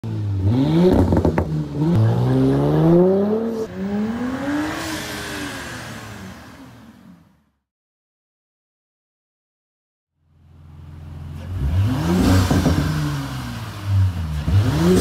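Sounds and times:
car engine revving: 0:00.0 - 0:07.4, 0:10.6 - 0:15.0
car accelerating hard: 0:00.1 - 0:07.3, 0:11.3 - 0:15.0.

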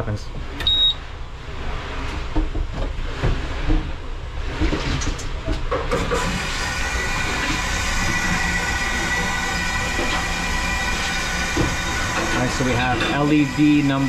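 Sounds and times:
water rushing through valve: 0:06.2 - 0:14.0.

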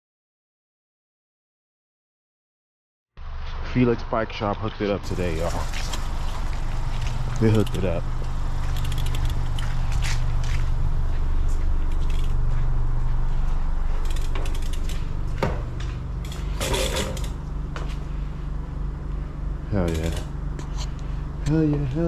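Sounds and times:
steady low hum: 0:03.2 - 0:22.0
bike clicking and rattling: 0:05.0 - 0:18.0, 0:19.7 - 0:21.0.

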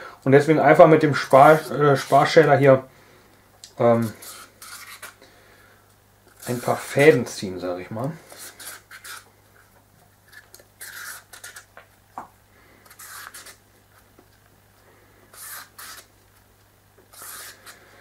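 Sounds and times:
vegetable peeler scraping squash: 0:03.9 - 0:05.2, 0:06.3 - 0:07.4, 0:08.2 - 0:11.7, 0:12.8 - 0:13.6, 0:15.3 - 0:16.2, 0:17.1 - 0:18.0.

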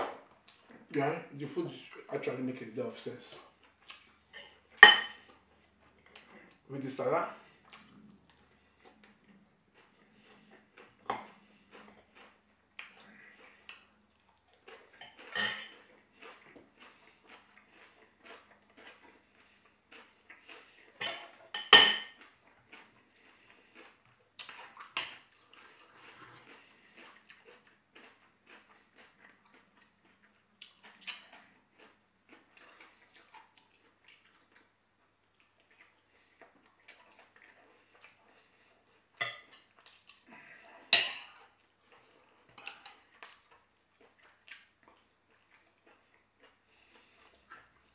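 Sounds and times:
chewing: 0:00.4 - 0:47.9
knife and fork on plate: 0:04.4 - 0:05.2, 0:15.0 - 0:15.8, 0:21.0 - 0:22.2, 0:40.9 - 0:41.4, 0:42.5 - 0:43.0.

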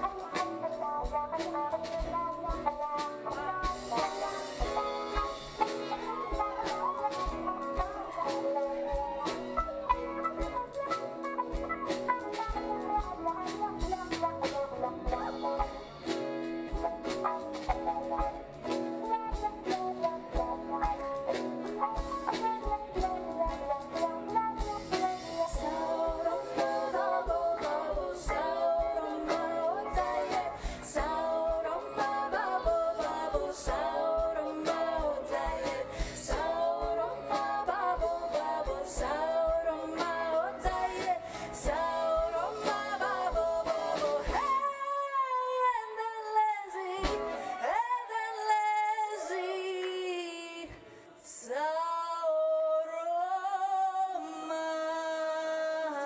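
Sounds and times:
live band playing: 0:00.0 - 0:50.2
electric guitar solo: 0:04.3 - 0:12.8.

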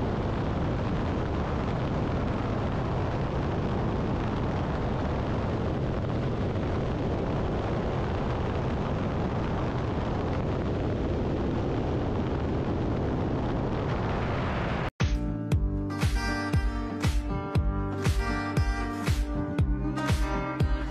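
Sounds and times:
freefall wind buffeting microphone: 0:00.0 - 0:15.0
music: 0:15.0 - 0:20.9.

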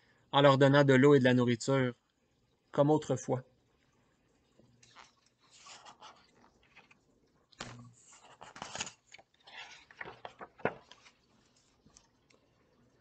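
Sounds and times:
book pages turning: 0:04.7 - 0:12.4.

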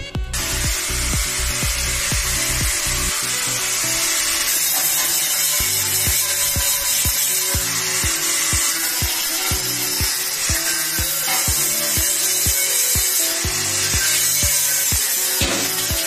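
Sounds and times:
angle grinder grinding metal: 0:00.0 - 0:16.0
background music with beat: 0:00.0 - 0:16.0.

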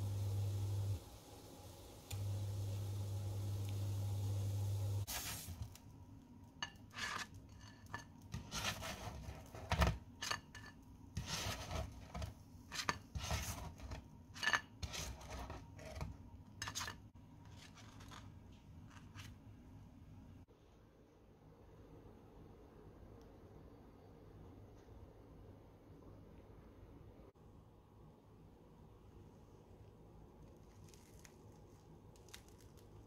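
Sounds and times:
steady low hum: 0:00.0 - 0:05.1
spatula scraping frying pan: 0:06.6 - 0:17.0.

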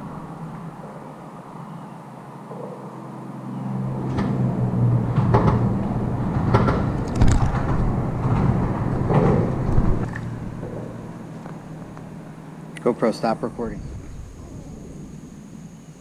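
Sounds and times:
vehicle engine humming: 0:00.0 - 0:16.0
sharp knocks and clacks: 0:05.1 - 0:10.8.

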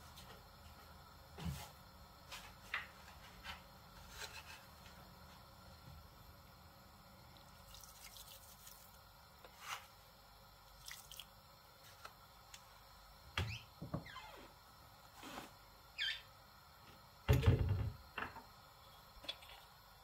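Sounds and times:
soup bubbling in a pot: 0:06.8 - 0:09.5, 0:10.5 - 0:11.6.

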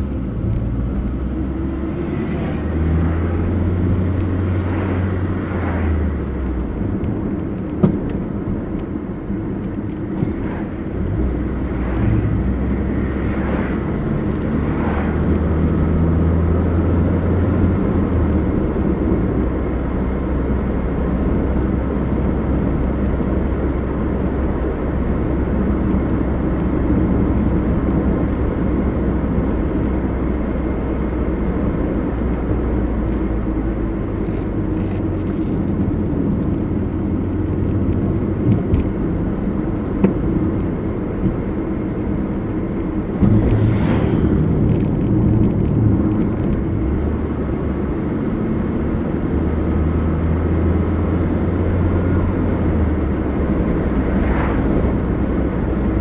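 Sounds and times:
car engine hum: 0:00.0 - 0:56.0
tyre and road rumble: 0:00.0 - 0:56.0.

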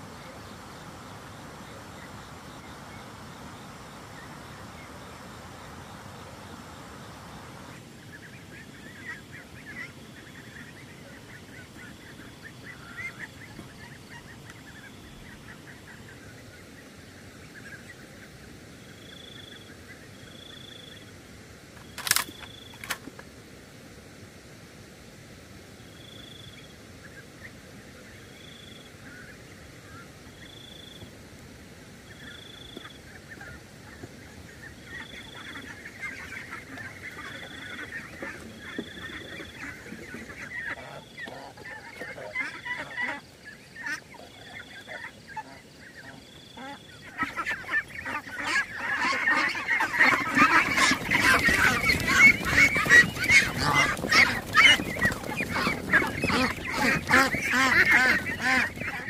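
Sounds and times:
ducks quacking: 0:00.0 - 0:16.8, 0:32.1 - 0:59.0.

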